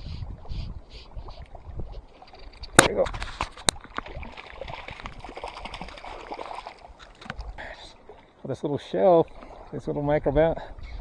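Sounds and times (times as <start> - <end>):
wind: 0.0 - 11.0
fish splashing at water surface: 2.8 - 7.4
lapping water: 3.6 - 8.3.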